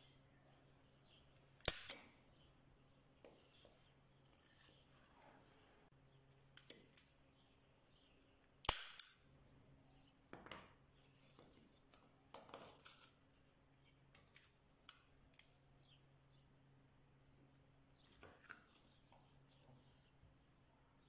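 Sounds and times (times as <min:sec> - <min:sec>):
staple gun snap: 0:01.6 - 0:02.1, 0:08.6 - 0:09.2.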